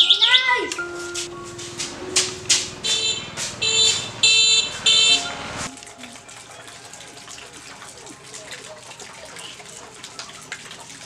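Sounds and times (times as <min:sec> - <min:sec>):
electric scooter alarm beeping: 0:02.4 - 0:05.6.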